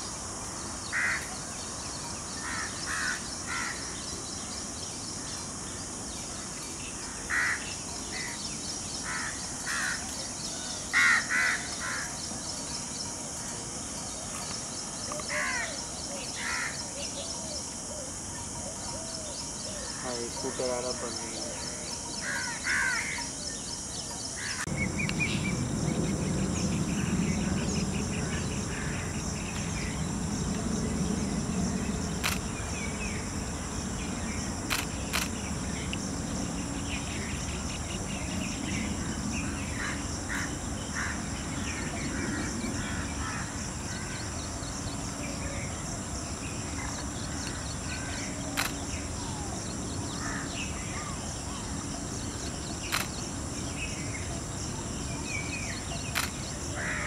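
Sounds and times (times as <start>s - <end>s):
insects droning: 0.0s - 57.0s
low rumble: 24.7s - 34.2s
sharp clicks: 32.2s - 32.5s, 34.7s - 35.4s, 48.6s - 48.8s, 52.9s - 53.2s, 56.1s - 56.4s.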